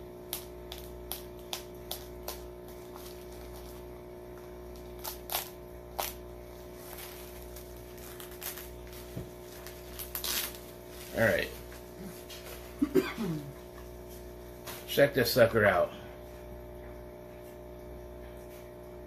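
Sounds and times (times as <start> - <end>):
steady hum: 0.0 - 19.0
bubble wrap crackling: 0.3 - 12.7.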